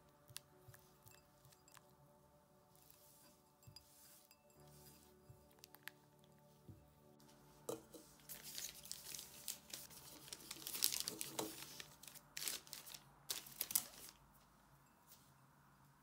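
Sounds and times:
plastic bag crinkling: 0:08.2 - 0:14.2.

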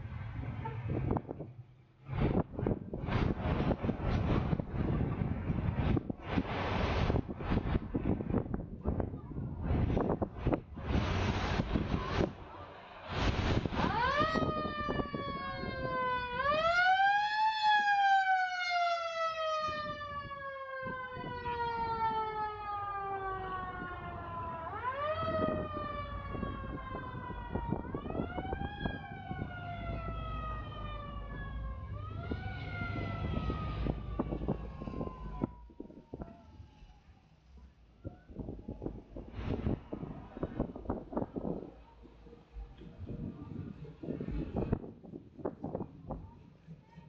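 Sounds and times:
low rumble: 0:00.0 - 0:16.5, 0:22.8 - 0:46.5
emergency vehicle siren wailing: 0:10.4 - 0:41.5.

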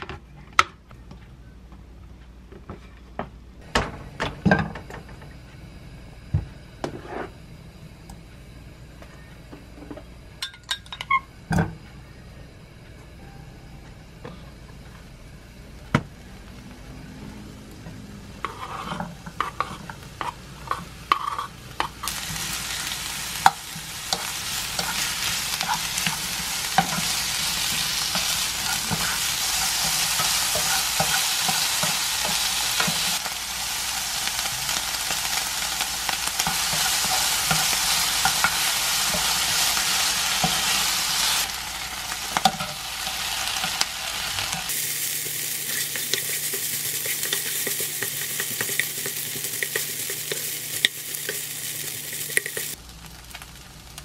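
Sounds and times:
food sizzling in frying pan: 0:15.7 - 0:54.0
spatula scraping and tapping pan: 0:18.4 - 0:22.2, 0:45.2 - 0:52.8.

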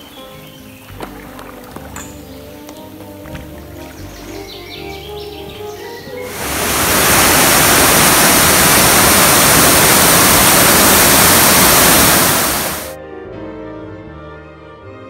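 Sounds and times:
waterfall rushing over rock: 0:06.3 - 0:13.0.

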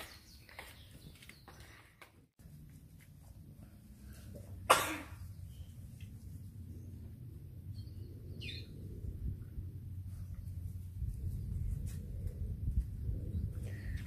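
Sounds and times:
low outdoor rumble: 0:02.4 - 0:14.0
loud cough: 0:04.7 - 0:05.2.

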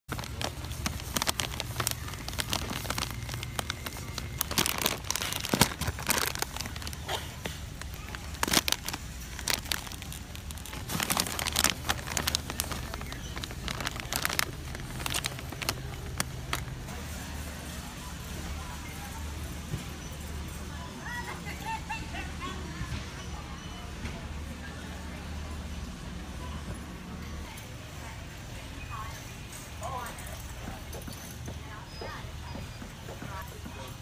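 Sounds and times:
plastic bag crinkling: 0:00.1 - 0:16.9
faint voices: 0:00.1 - 0:34.0.

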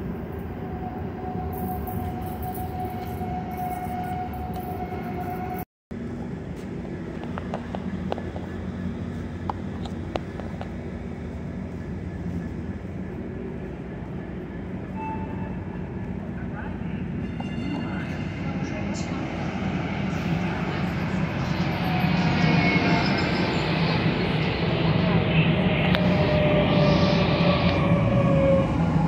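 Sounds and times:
train rumbling: 0:00.0 - 0:29.0
steady low rumble: 0:05.9 - 0:14.9.

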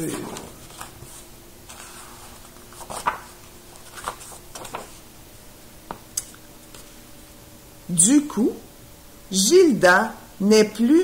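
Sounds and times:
picture book pages rustling: 0:00.0 - 0:05.1, 0:05.8 - 0:07.0
faint steady hum: 0:00.0 - 0:11.0.

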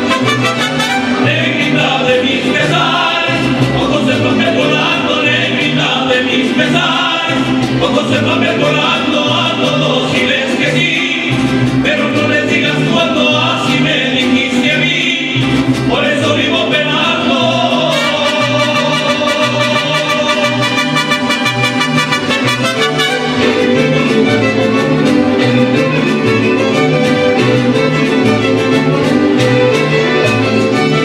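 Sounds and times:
trumpets: 0:00.0 - 0:01.4, 0:17.9 - 0:25.1
mariachi band playing: 0:00.0 - 0:31.0
voices singing together: 0:00.9 - 0:21.3.

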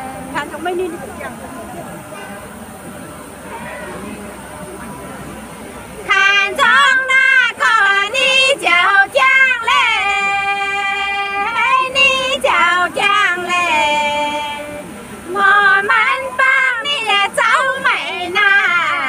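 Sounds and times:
women singing unaccompanied: 0:00.0 - 0:01.5, 0:06.0 - 0:19.0.

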